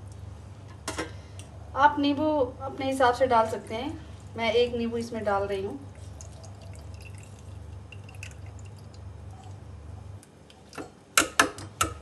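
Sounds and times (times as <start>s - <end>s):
juice dripping into pot: 5.8s - 12.0s.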